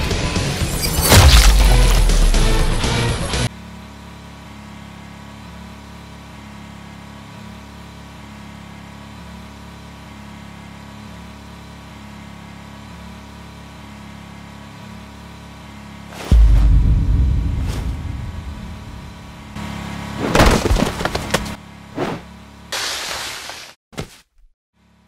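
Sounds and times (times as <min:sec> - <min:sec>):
steady low hum: 0:16.3 - 0:20.1.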